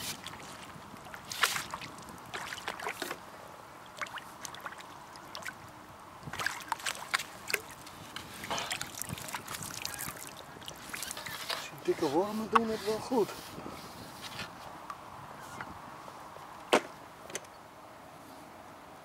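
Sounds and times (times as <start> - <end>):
landing net scooping water: 0.0 - 13.3.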